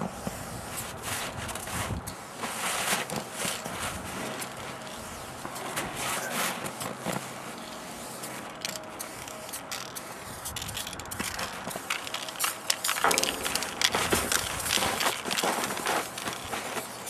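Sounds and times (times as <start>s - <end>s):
crunching and scraping: 0.0s - 17.0s
spray-paint can hissing: 8.0s - 17.0s.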